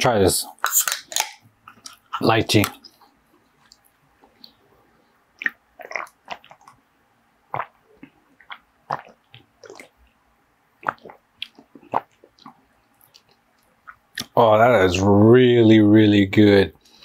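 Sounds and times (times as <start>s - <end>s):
person gulping and swallowing: 5.4s - 6.8s, 7.5s - 10.0s, 10.8s - 14.4s.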